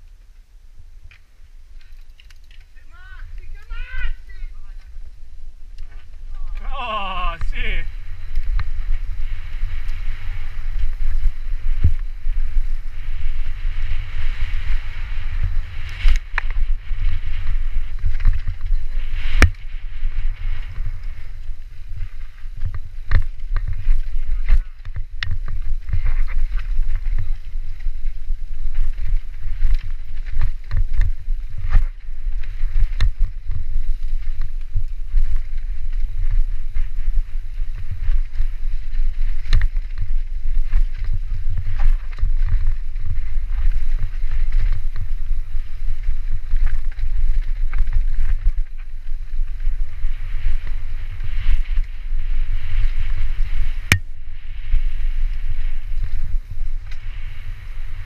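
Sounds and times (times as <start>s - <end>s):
wind rumble on microphone: 0.0s - 58.0s
bike knocking and rattling: 15.4s - 51.9s.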